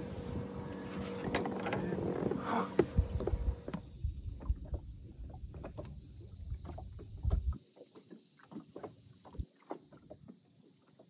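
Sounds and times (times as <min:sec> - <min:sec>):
waves slapping boat hull: 0:00.0 - 0:10.2
thump on hull: 0:00.9 - 0:04.8
low rumble: 0:01.6 - 0:07.6.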